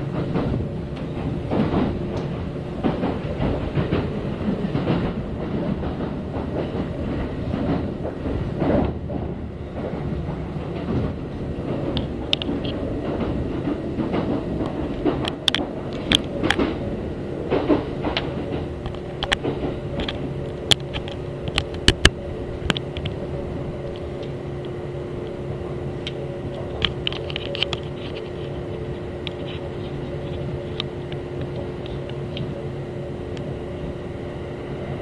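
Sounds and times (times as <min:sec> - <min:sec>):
electric train hum and rumble: 0:00.0 - 0:35.0
sharp clicks and knocks: 0:00.2 - 0:16.9, 0:17.5 - 0:23.2, 0:26.0 - 0:32.5.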